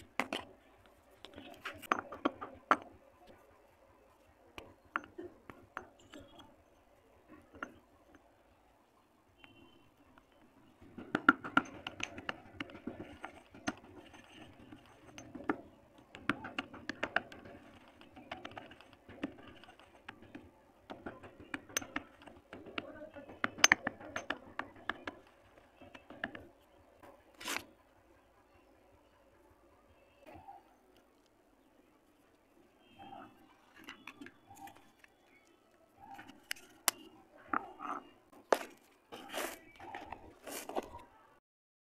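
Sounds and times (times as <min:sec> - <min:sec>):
dry clay pattering and rustling: 0:10.1 - 0:27.9, 0:30.8 - 0:41.2
pestle knocking in stone mortar: 0:10.8 - 0:26.5
gritty grinding scrape: 0:27.3 - 0:27.7, 0:37.6 - 0:41.0.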